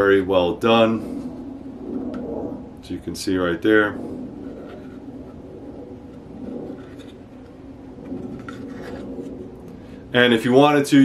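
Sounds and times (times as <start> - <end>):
plastic holster scratching and rubbing: 4.4 - 5.4, 6.0 - 9.6.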